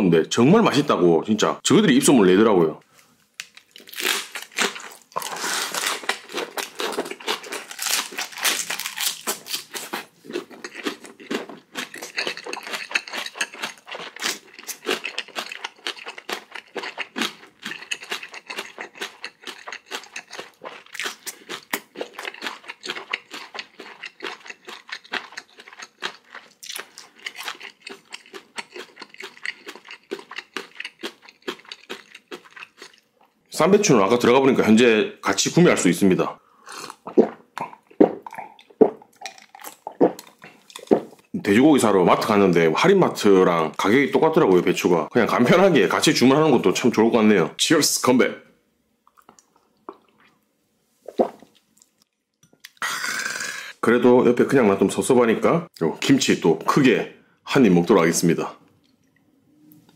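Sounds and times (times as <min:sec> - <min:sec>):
person chewing crunchy food: 0:03.4 - 0:33.4, 0:36.7 - 0:41.3, 0:49.1 - 0:50.4
wet mouth sounds: 0:36.7 - 0:41.3, 0:51.0 - 0:53.8.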